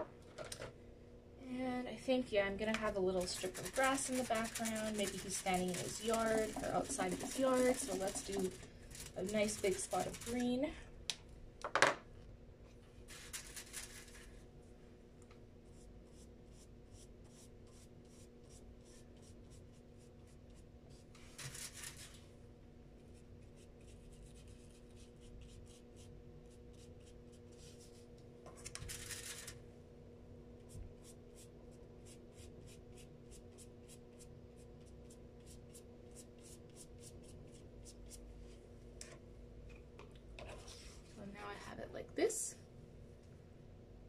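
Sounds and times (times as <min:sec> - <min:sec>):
brush scrubbing on foil: 0:03.1 - 0:10.6, 0:13.1 - 0:14.3, 0:21.2 - 0:22.2, 0:28.9 - 0:29.6
paintbrush brushing on paper: 0:03.2 - 0:10.4, 0:26.7 - 0:28.1.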